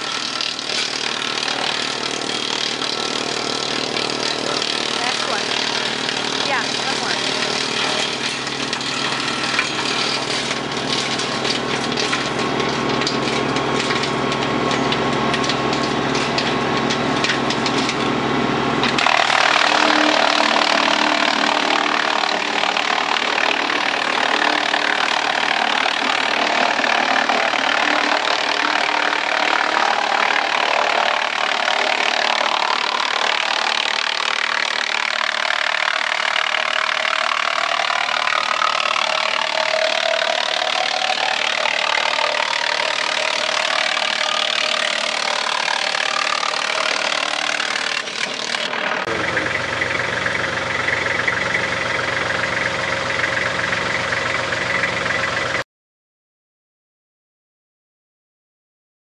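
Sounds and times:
machine drone with pulsing hum: 0:00.0 - 0:55.6
wood chipper grinding: 0:00.0 - 0:55.6.

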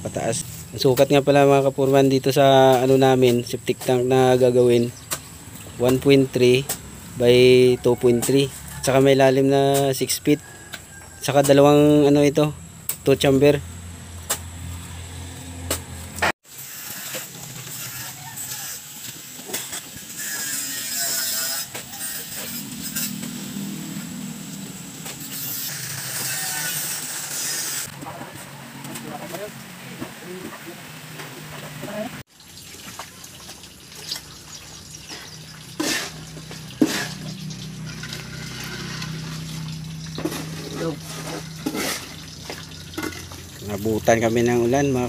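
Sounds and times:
muddy water sloshing: 0:32.4 - 0:43.8.

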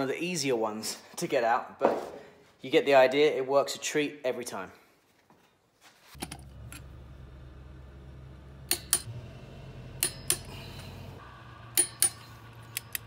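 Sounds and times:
wrench metallic clicks: 0:10.0 - 0:10.5, 0:11.8 - 0:13.0.

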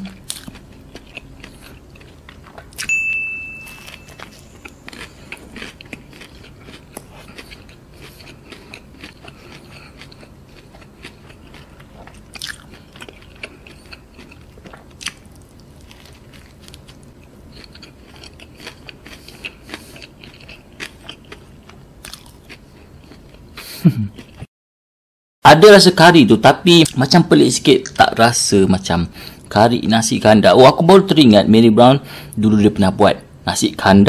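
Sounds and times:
chewing food: 0:00.0 - 0:02.9, 0:03.6 - 0:24.5.

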